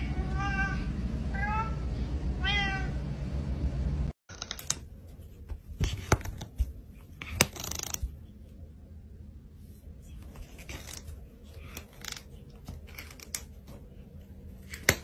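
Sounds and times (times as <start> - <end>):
cat meowing: 0.0 - 1.8, 2.4 - 3.0
low steady rumble: 0.0 - 4.1.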